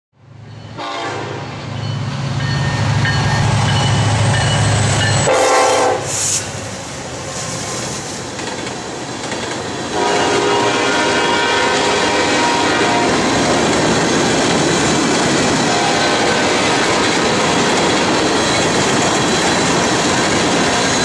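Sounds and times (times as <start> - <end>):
diesel locomotive engine drone: 0.2 - 21.0
rolling train cars: 0.2 - 21.0
train horn blast: 0.7 - 1.6, 5.2 - 6.4, 9.9 - 13.3, 15.6 - 17.2.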